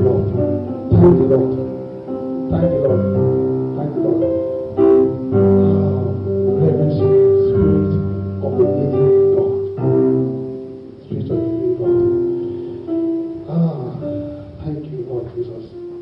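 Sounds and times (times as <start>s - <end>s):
slow keyboard worship music: 0.0s - 16.0s.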